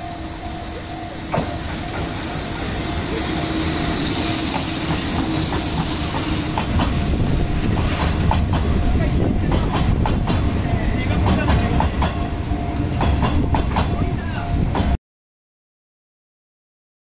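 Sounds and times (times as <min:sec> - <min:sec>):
electric locomotive rumbling past: 0:00.0 - 0:15.0
wheels clicking over rail joints: 0:04.5 - 0:12.2.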